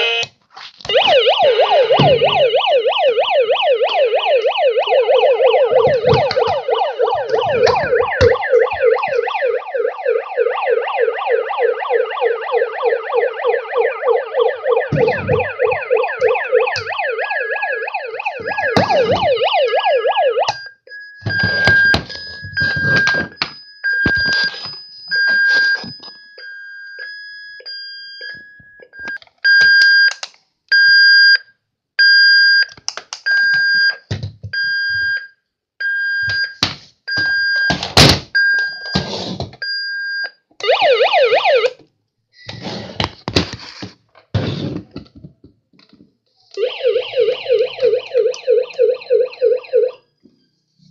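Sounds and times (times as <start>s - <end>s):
toy siren warbling: 0.9s - 23.4s, 40.6s - 41.8s, 46.5s - 50.1s
electronic beeps: 0.9s - 26.1s.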